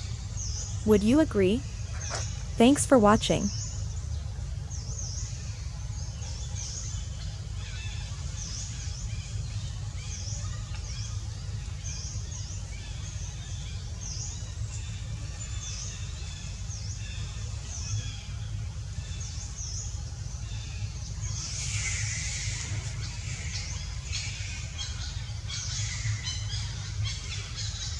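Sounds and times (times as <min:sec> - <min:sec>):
steady low rumble: 0:00.0 - 0:27.9
fainter calls: 0:21.2 - 0:27.9.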